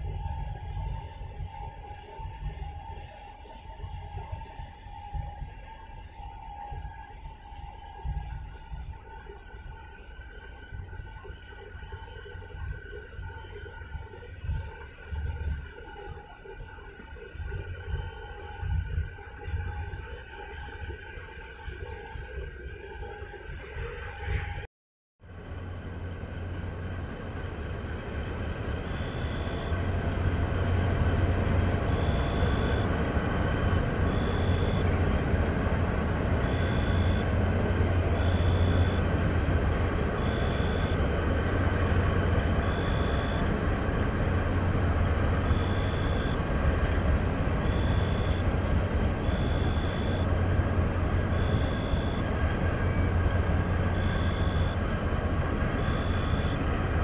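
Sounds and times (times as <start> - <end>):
ship engine rumble: 25.3 - 57.0.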